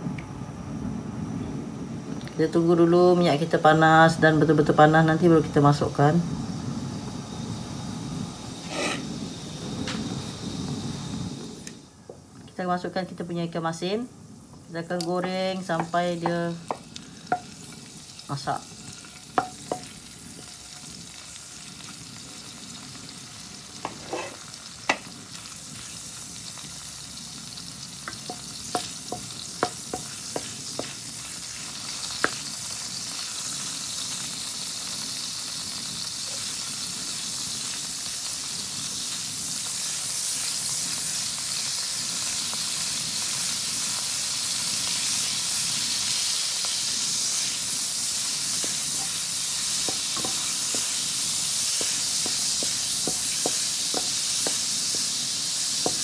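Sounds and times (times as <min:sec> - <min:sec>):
fish sizzling in hot oil: 0:01.4 - 0:56.0.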